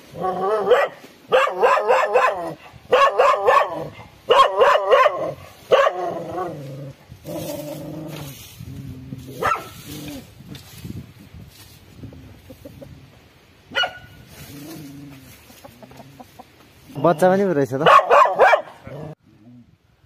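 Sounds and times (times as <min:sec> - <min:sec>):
dog barking: 0:00.2 - 0:06.2, 0:09.4 - 0:09.8, 0:13.7 - 0:14.2, 0:17.8 - 0:19.2.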